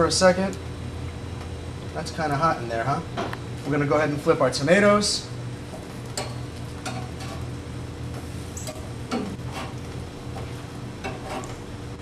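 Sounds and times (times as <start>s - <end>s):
steady low hum: 0.0s - 12.0s
metal spatula scraping grill rack: 6.8s - 7.5s, 8.7s - 9.8s, 11.0s - 11.6s.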